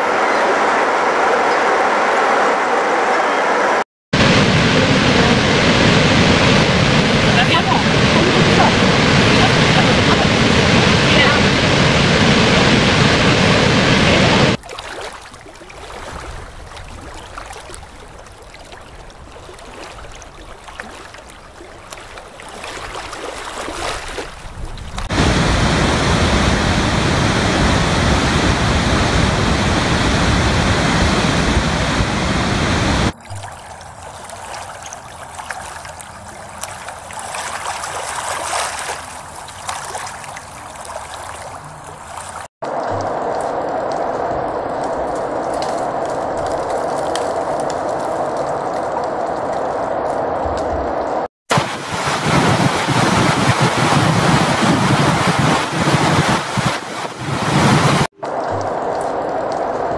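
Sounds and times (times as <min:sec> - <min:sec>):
waterfall roaring: 0:00.0 - 0:14.6, 0:25.0 - 0:33.2, 0:42.7 - 0:59.9.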